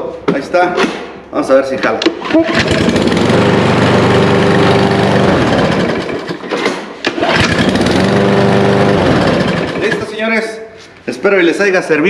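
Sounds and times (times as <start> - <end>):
lawn mower engine running: 2.4 - 10.2.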